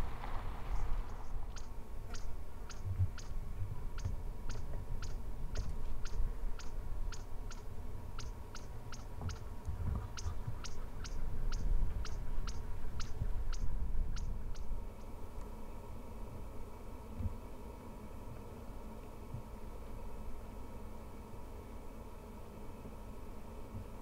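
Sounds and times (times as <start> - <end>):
low rumble: 0.0 - 2.2.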